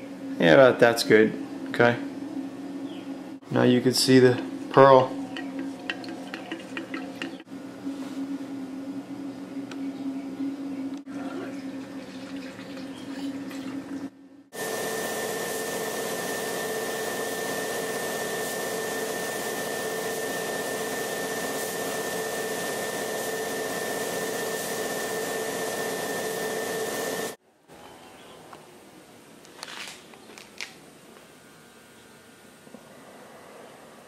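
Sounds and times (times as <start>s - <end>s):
paint spray gun hissing: 14.6s - 27.4s.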